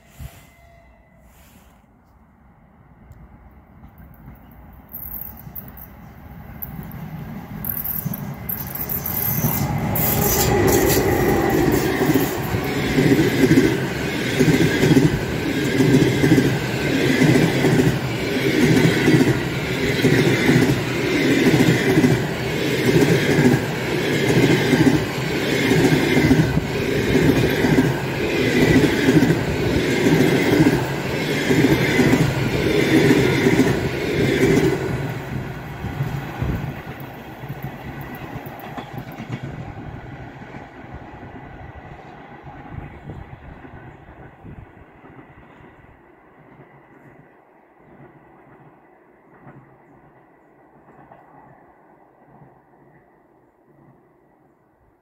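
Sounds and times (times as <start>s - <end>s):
train rumble: 2.9s - 47.2s
train wheels clattering: 7.6s - 34.8s.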